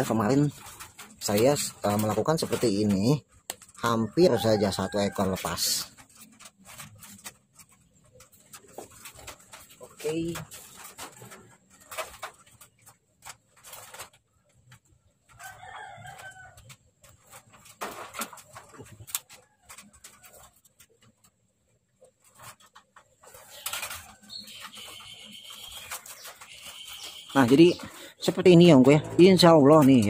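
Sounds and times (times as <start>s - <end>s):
wire bird cage rattling: 0.0s - 3.8s
bird calling: 23.4s - 29.2s.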